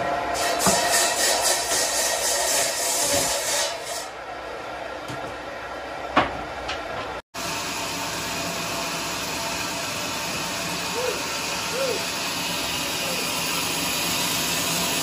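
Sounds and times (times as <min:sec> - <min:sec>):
sawmill machinery rushing: 0:07.4 - 0:15.0.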